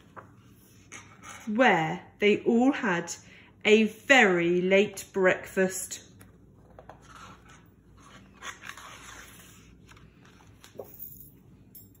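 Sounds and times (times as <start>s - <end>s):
book page rustling and handling: 0.0s - 1.5s, 6.2s - 10.8s.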